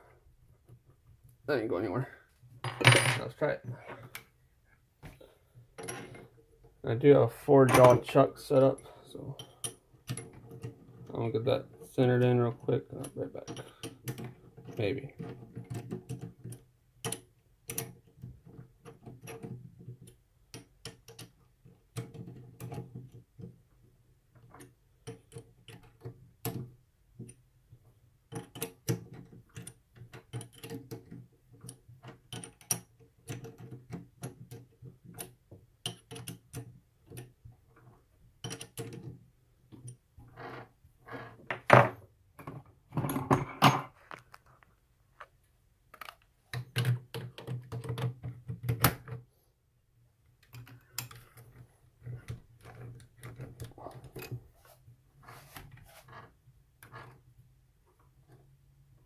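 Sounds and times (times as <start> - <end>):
metal tools clicking and knocking: 9.3 - 10.8, 13.0 - 18.0, 28.3 - 37.3, 38.4 - 39.2.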